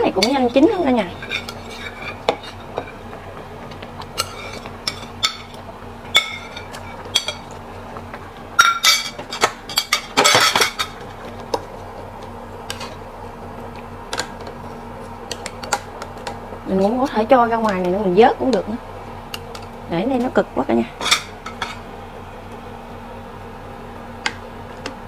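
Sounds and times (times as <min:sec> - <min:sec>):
faint steady hum: 0:00.0 - 0:25.0
metal utensils clinking: 0:08.6 - 0:11.0, 0:21.0 - 0:21.8.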